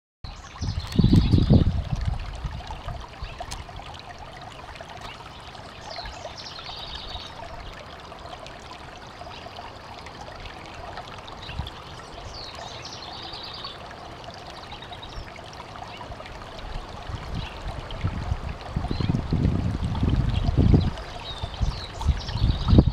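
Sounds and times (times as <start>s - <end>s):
stream flowing over rocks: 0.3s - 22.9s.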